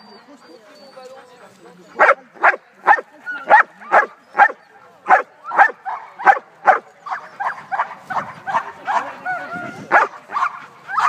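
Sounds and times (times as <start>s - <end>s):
dog barking: 2.0s - 9.2s, 9.9s - 11.0s.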